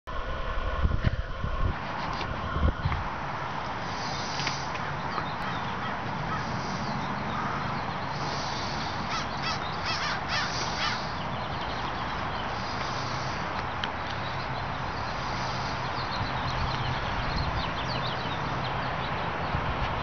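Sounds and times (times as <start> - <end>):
crows cawing: 4.4 - 11.2.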